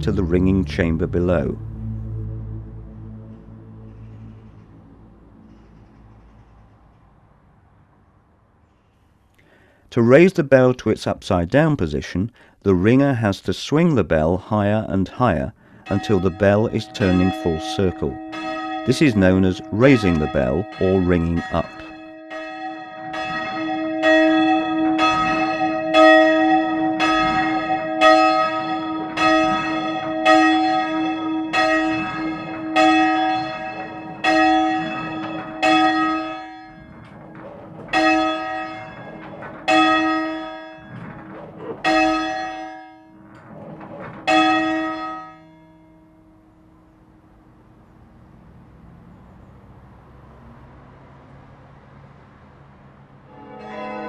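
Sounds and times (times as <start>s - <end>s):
church bell ringing: 0.0s - 7.2s, 14.1s - 47.8s, 53.2s - 54.0s.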